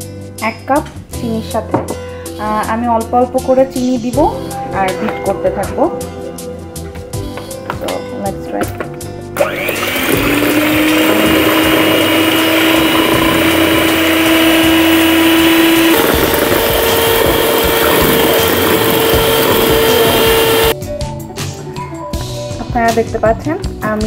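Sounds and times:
electric hand mixer whine: 9.4s - 20.8s.

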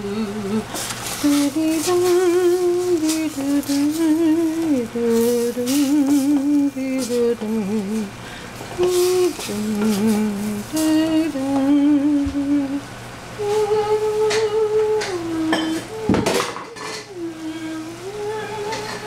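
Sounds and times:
person humming a slow tune: 0.0s - 8.2s, 8.8s - 19.0s
utensils clinking against pots: 14.3s - 17.2s, 18.6s - 19.0s.

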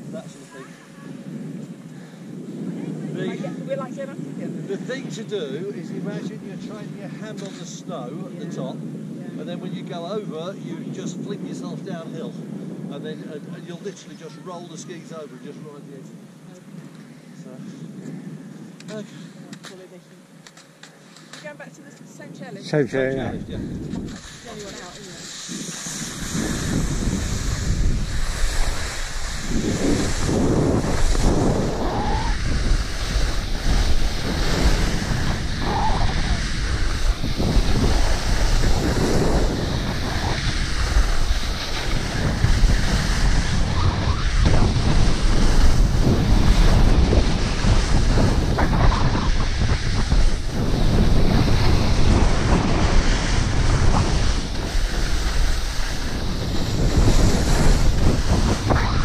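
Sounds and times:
skis scraping on snow: 0.0s - 2.0s, 18.9s - 59.0s
wind buffeting microphone: 0.0s - 19.9s, 21.5s - 59.0s.

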